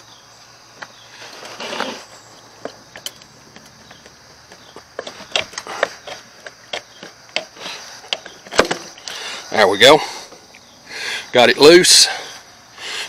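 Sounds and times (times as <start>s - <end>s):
rubber hose rubbing: 1.1s - 2.1s.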